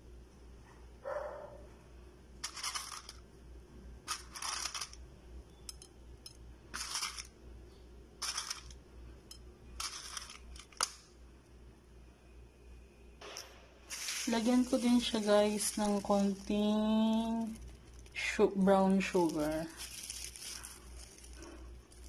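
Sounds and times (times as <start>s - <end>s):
packaging rustling: 4.1s - 5.0s, 9.8s - 10.9s, 13.9s - 18.3s, 18.9s - 22.0s.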